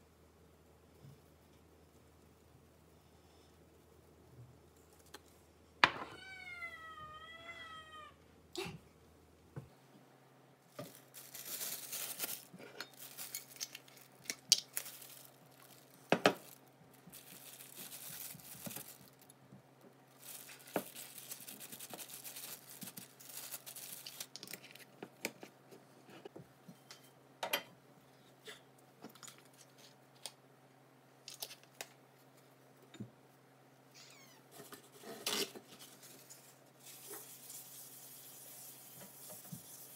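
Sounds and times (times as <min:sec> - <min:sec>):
cat meowing: 0:06.0 - 0:08.2, 0:33.9 - 0:34.5
plastic bag crinkling: 0:10.7 - 0:19.4, 0:20.1 - 0:25.0.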